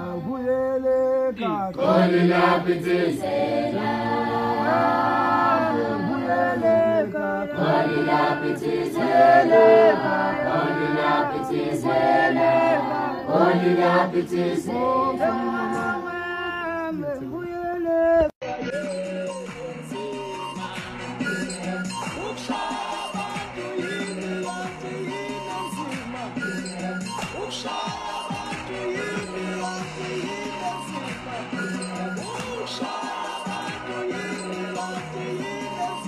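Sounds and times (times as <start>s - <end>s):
group of voices singing: 0.0s - 17.4s, 18.1s - 36.0s.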